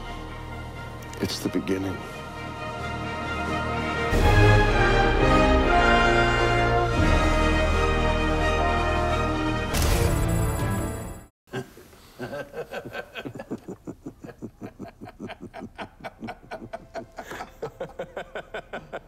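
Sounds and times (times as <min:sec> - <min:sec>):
man laughing heartily: 0:11.5 - 0:19.0.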